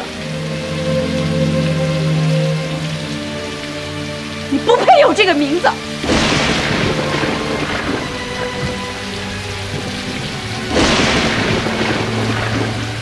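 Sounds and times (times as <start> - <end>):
heavy rain pouring: 0.0 - 13.0
thunderclaps: 5.9 - 13.0.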